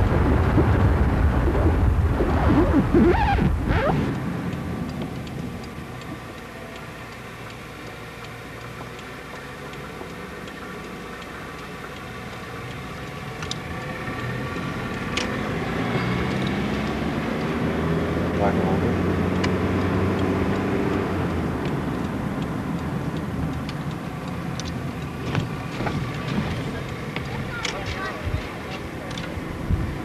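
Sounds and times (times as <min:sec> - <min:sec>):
car engine and road hum: 0:00.0 - 0:30.0
faint clicks: 0:02.6 - 0:15.5, 0:21.6 - 0:29.4.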